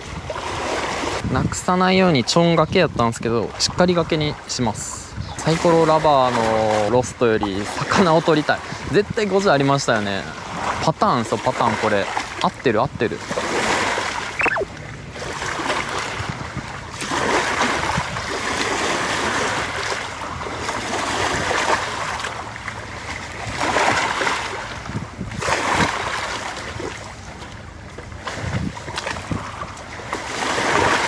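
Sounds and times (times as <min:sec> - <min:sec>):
small waves lapping on shore: 0:00.0 - 0:31.0.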